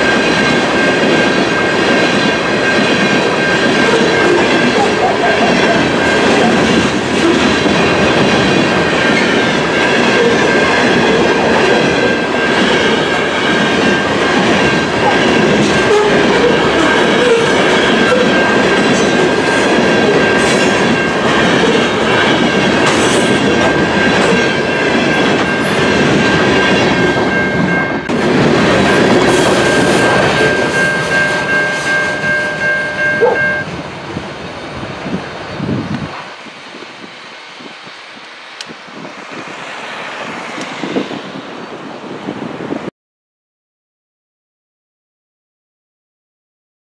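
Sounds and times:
freight train wheels clattering: 0.0 - 34.0
steady high-pitched tone: 26.6 - 33.8.

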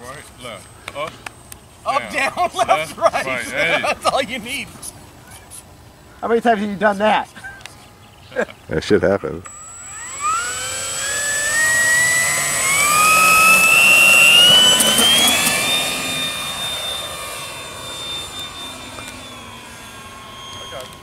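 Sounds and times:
model plane motor whine: 9.4 - 21.0.

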